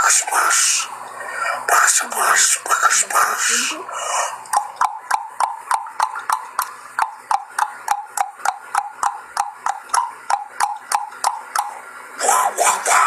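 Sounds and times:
person clicking mouth: 4.3 - 11.8.

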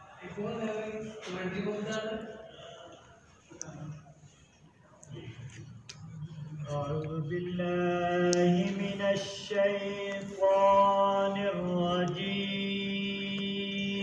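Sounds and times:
man chanting melodically: 5.1 - 14.0.

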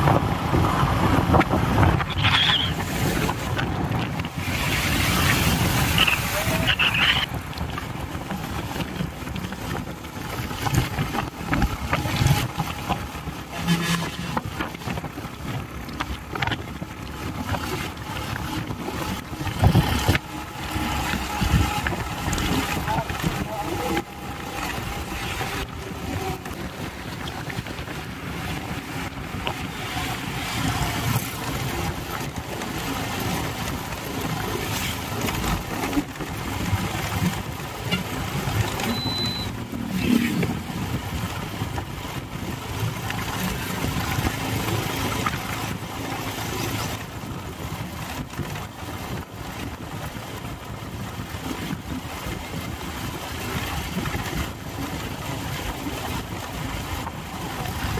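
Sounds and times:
drilling rig engine rumbling: 0.0 - 35.8
brief high whistle: 38.9 - 39.5.

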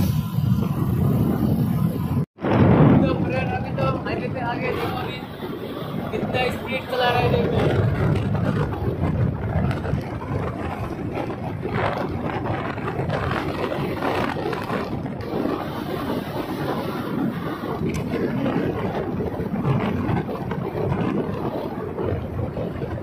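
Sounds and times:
wind buffeting microphone: 0.0 - 23.0
scooter engine and tyres droning: 4.6 - 23.0.

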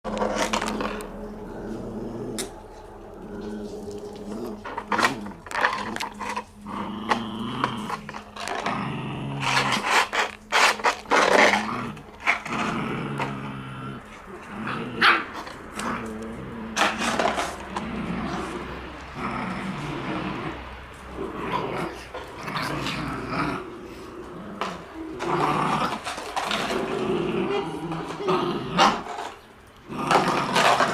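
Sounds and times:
puppies play-growling: 0.1 - 30.9.

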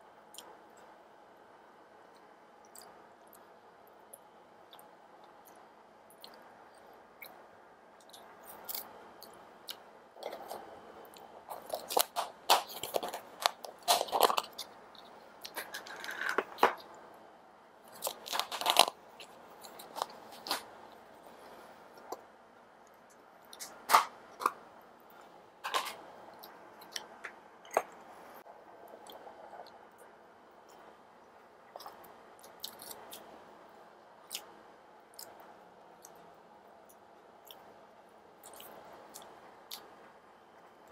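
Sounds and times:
chewing and crunching food: 0.3 - 1.0, 2.1 - 17.0, 17.8 - 28.1, 28.8 - 40.9
plastic food packs crinkling: 11.5 - 14.7, 15.5 - 16.8, 17.9 - 20.7, 25.6 - 26.0.

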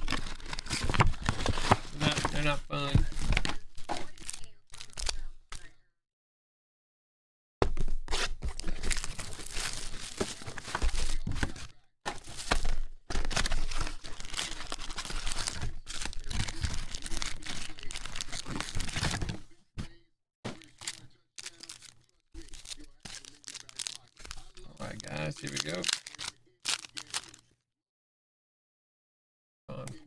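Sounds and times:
cardboard and plastic wrap tearing: 0.0 - 5.2, 8.1 - 19.4, 20.5 - 27.4.

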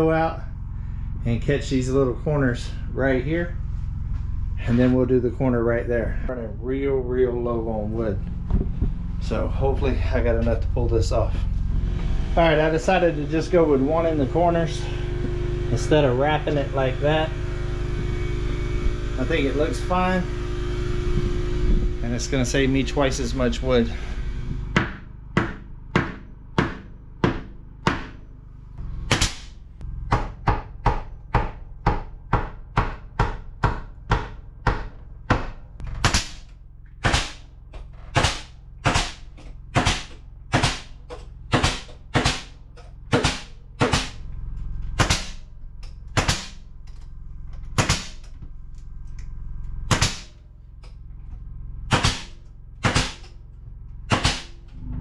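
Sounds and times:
nail gun firing into wood: 29.1 - 29.5, 36.0 - 36.4, 37.0 - 37.4, 38.1 - 40.9, 41.5 - 42.5, 43.1 - 44.2, 45.0 - 45.4, 46.2 - 46.6, 47.8 - 48.2, 49.9 - 50.3, 51.9 - 53.2, 54.1 - 54.5.

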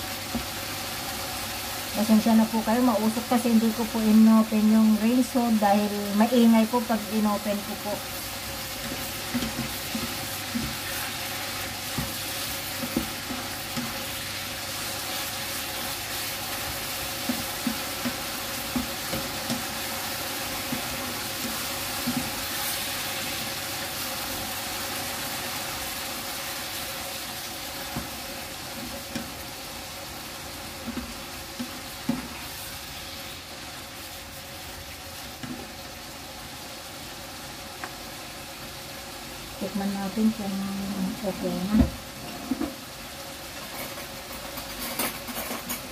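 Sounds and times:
food sizzling in a frying pan: 0.0 - 45.9
spatula knocking and scraping pan: 8.8 - 14.0, 16.6 - 19.9, 20.6 - 22.6.

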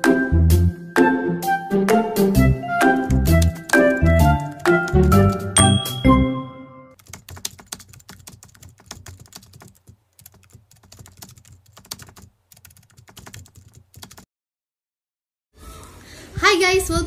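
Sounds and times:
keyboard typing: 3.2 - 6.2, 7.0 - 14.3
jingle chime: 5.6 - 7.0.

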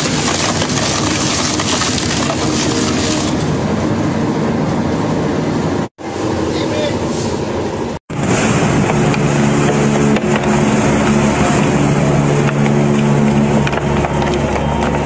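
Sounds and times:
tire crunching and tearing: 0.0 - 3.7, 8.1 - 15.0
shredder drive hum: 0.0 - 4.8, 8.1 - 15.0.

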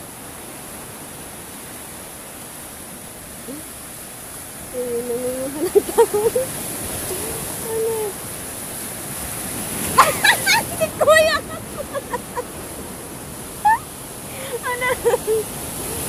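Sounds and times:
waves surging over rocks: 0.0 - 16.0
person's voice: 4.8 - 8.2, 10.0 - 12.4, 13.7 - 16.0.

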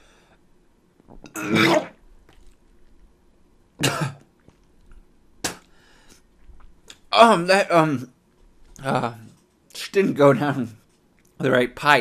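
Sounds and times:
man coughing hard: 1.3 - 1.9, 3.8 - 4.2.

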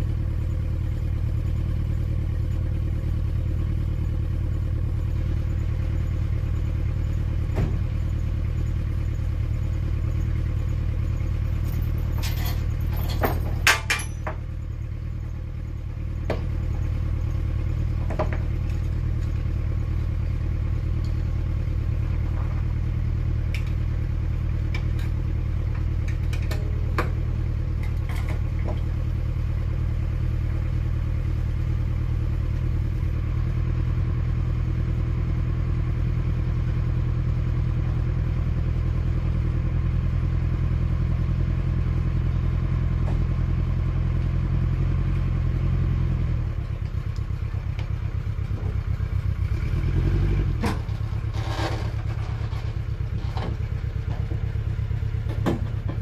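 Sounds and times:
car engine idling: 0.0 - 56.0
engine revving: 49.4 - 52.6.

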